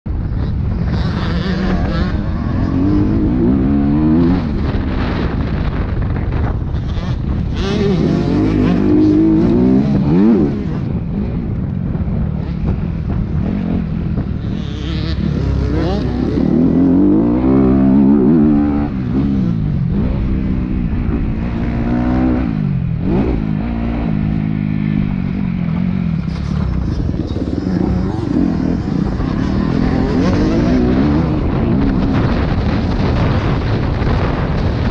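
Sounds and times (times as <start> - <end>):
dirt bike engine revving: 0.2 - 34.9.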